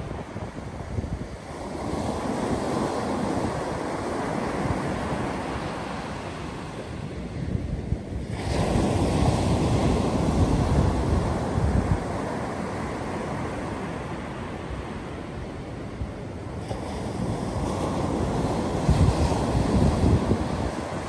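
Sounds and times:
wind buffeting microphone: 0.0 - 14.0, 15.6 - 21.0
surf washing onto sandy beach: 8.2 - 14.4, 16.6 - 21.0.

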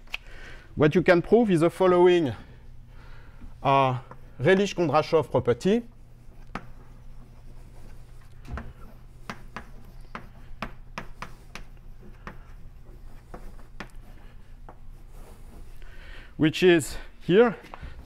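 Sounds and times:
low steady hum: 0.0 - 18.0
chalk tapping and scraping: 6.2 - 15.9.

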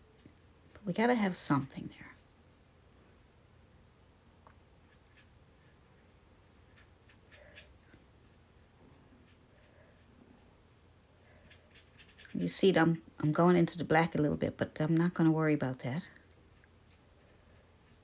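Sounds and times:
room hum: 0.0 - 18.0
paintbrush scratching on canvas: 4.8 - 13.4, 16.2 - 18.0.

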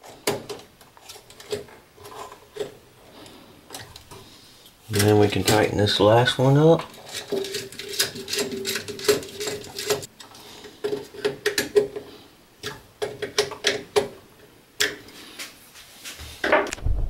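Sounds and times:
screwdriver clicking and scraping: 6.9 - 10.1.

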